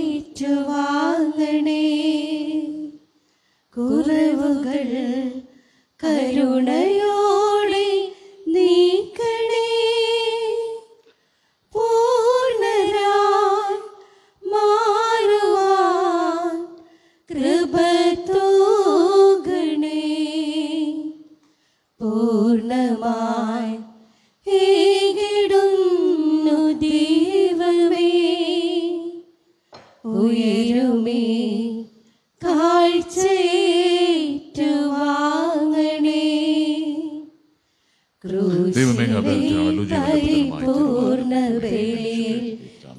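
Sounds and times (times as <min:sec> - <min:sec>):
singer breathing: 0:03.2 - 0:03.7, 0:05.5 - 0:06.0, 0:11.0 - 0:11.7, 0:14.0 - 0:14.4, 0:16.8 - 0:17.3, 0:21.4 - 0:22.0, 0:37.5 - 0:38.2
person singing a hymn: 0:38.3 - 0:42.9.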